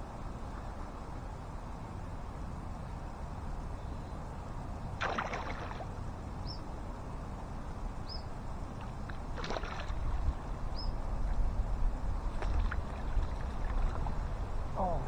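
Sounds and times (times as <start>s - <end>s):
low wind rumble: 0.0s - 15.0s
fish splashing at water surface: 5.0s - 5.9s, 9.3s - 10.2s.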